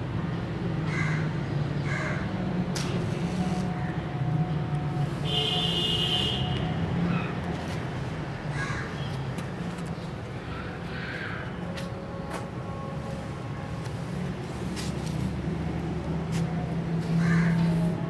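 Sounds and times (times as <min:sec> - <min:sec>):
low hum of street traffic: 0:00.0 - 0:18.0
crow cawing: 0:00.9 - 0:02.2, 0:08.5 - 0:09.1, 0:17.2 - 0:17.6.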